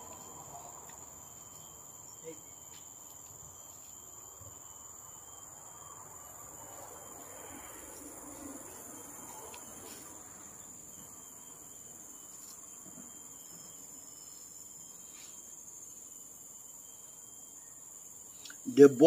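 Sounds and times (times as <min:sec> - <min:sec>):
insects chorus: 0:00.0 - 0:19.0.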